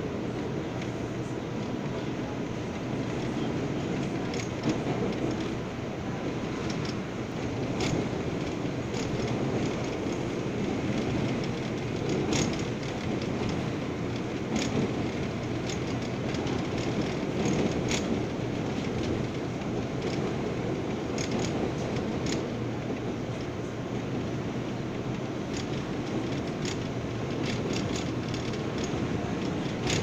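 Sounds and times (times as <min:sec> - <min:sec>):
subway wheels rumbling on rails: 0:00.0 - 0:30.0
sharp track clicks: 0:07.7 - 0:23.5, 0:25.0 - 0:30.0.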